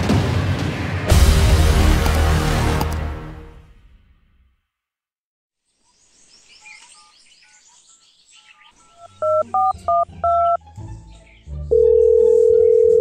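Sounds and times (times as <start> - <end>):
touch-tone keypad beeps: 9.2 - 10.6.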